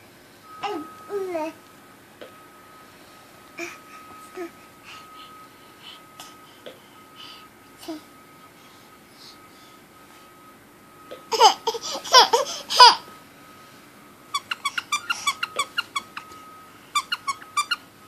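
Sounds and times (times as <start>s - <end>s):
high-pitched squeaks: 17.0s - 17.8s.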